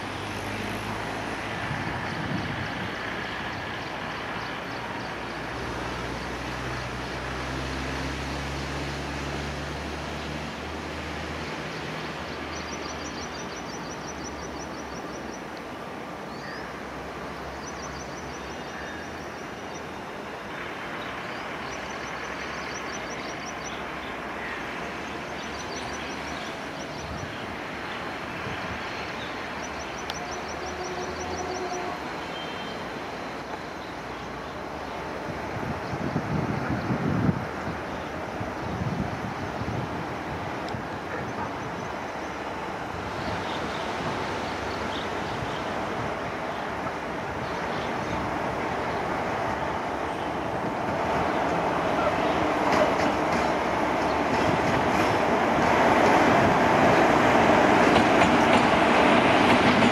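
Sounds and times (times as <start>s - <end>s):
train rumbling on tracks: 0.0s - 59.9s.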